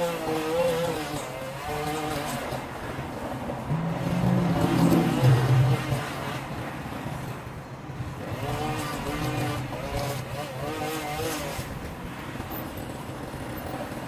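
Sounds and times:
string trimmer engine revving: 0:00.0 - 0:02.8, 0:03.6 - 0:06.6, 0:08.2 - 0:11.9.

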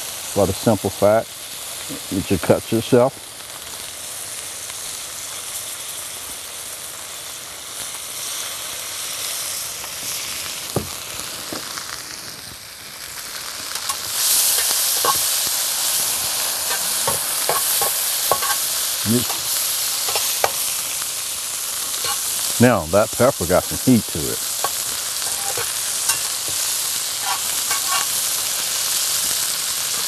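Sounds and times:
vegetables sizzling in a skillet: 0:00.0 - 0:30.0
metal utensil scraping a pan: 0:13.8 - 0:20.7, 0:21.9 - 0:22.5, 0:24.5 - 0:28.5.

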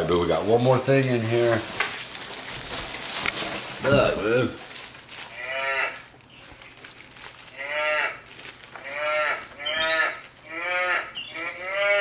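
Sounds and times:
monkey calling: 0:08.9 - 0:12.0.

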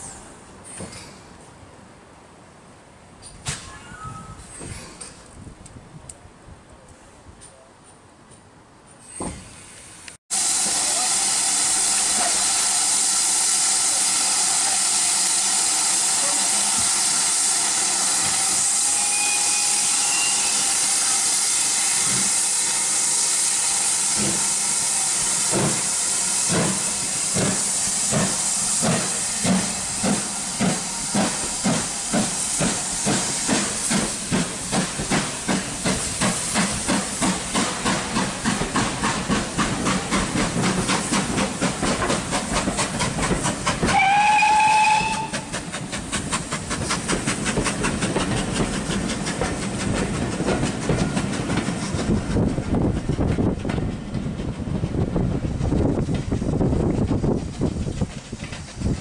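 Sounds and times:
steam hissing: 0:09.1 - 0:59.0
steam locomotive exhaust beats: 0:09.2 - 0:59.0.

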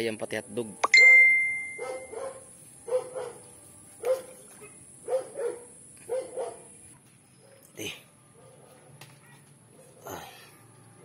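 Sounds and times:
metallic ring: 0:00.8 - 0:02.1.

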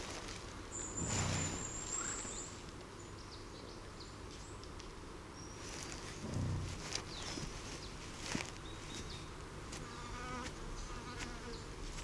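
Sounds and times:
bison grunt: 0:06.2 - 0:07.0.

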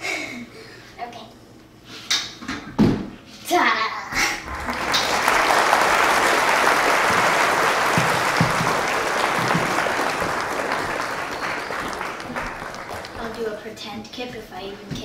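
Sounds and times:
dense applause: 0:04.5 - 0:13.6.

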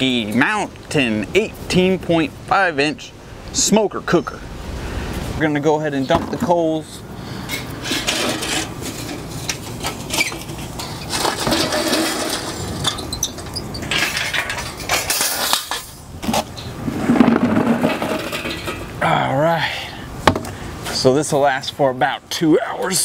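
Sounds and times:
charcoal clattering into metal ring: 0:11.0 - 0:16.0.

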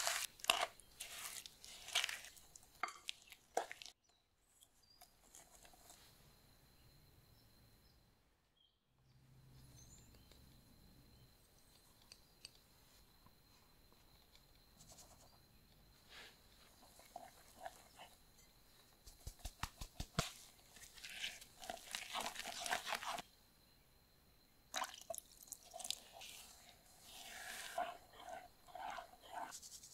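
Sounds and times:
spatula scraping batter: 0:00.0 - 0:03.9, 0:16.1 - 0:18.5, 0:20.3 - 0:23.3, 0:25.6 - 0:29.9.

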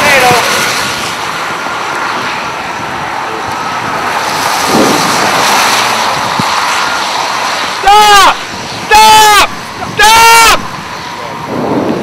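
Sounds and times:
car road and wind noise: 0:00.0 - 0:12.0.

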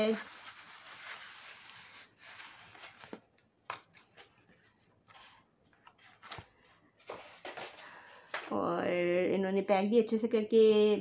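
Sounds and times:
cardboard rustling and scraping: 0:00.0 - 0:07.8.

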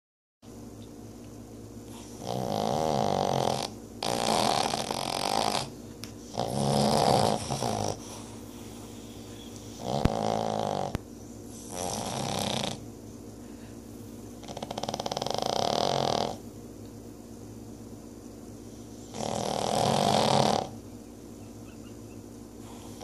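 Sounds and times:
dog breathing: 0:01.9 - 0:12.8, 0:22.5 - 0:23.0
dog snoring: 0:01.9 - 0:12.9, 0:14.4 - 0:16.5, 0:18.7 - 0:20.8, 0:22.6 - 0:23.0.

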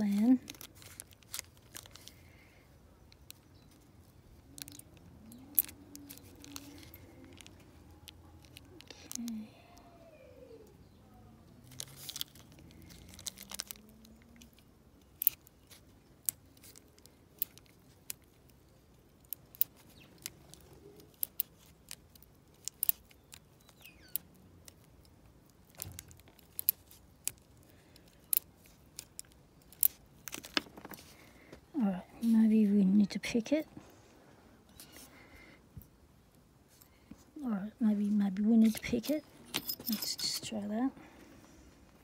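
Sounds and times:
lock pick clicking in lock: 0:19.2 - 0:30.6.

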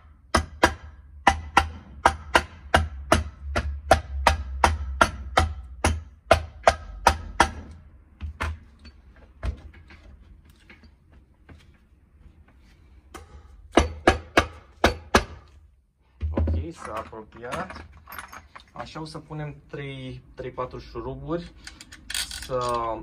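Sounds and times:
rubber mallet knocking on metal: 0:00.3 - 0:08.6, 0:13.2 - 0:15.4.

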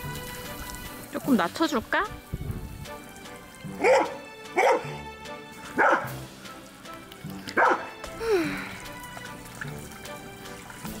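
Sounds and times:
background music: 0:00.0 - 0:11.0
sprinkler jets spraying: 0:00.0 - 0:11.0
dog barking: 0:03.8 - 0:05.0, 0:05.8 - 0:06.2, 0:07.6 - 0:07.9.

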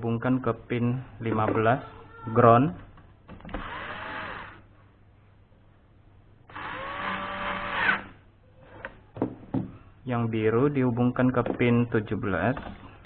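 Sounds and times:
electric screwdriver motor whine: 0:03.6 - 0:04.6, 0:06.5 - 0:08.0.

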